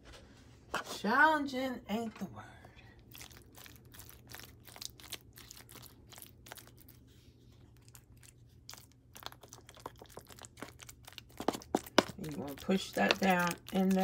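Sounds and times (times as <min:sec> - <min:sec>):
utensil scraping and squishing food: 0:02.7 - 0:14.0
foil pan crinkling: 0:08.8 - 0:14.0.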